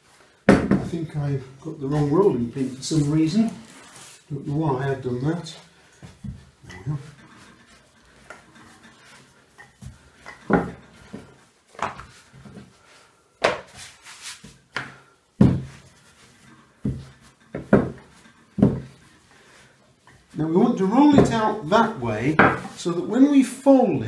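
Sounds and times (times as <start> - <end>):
rolling pin rolling pastry: 0.4 - 23.0
wooden knocks and thuds: 0.5 - 1.1, 9.8 - 12.7, 14.8 - 15.9, 16.8 - 19.0, 21.0 - 21.6, 22.3 - 22.8.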